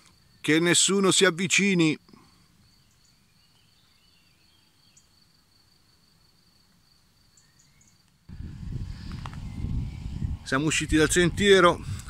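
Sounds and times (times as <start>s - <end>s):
high insect trill: 0.0s - 12.0s
faint bird chirps: 2.1s - 5.3s, 7.2s - 8.1s, 8.8s - 10.4s
loud low rumble: 8.3s - 12.0s.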